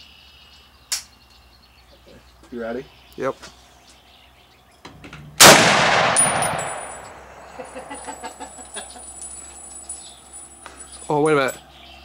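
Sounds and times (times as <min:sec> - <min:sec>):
rifle shot: 0:05.4 - 0:07.6.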